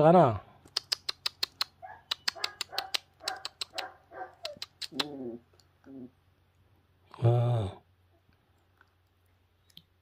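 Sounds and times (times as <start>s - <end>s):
sharp clicks: 0.6s - 5.7s
puppy whimpering: 2.3s - 6.2s
low long vocal sounds: 7.1s - 7.8s.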